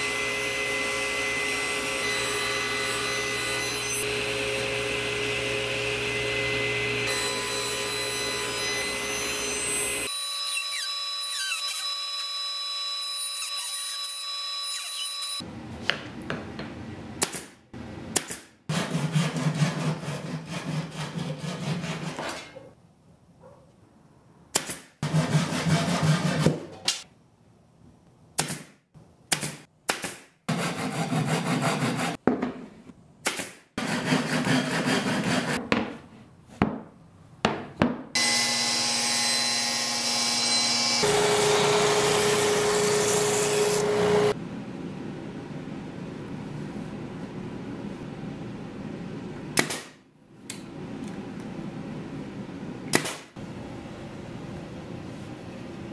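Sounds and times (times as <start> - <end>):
table saw running: 0.0 - 11.4, 38.2 - 44.4.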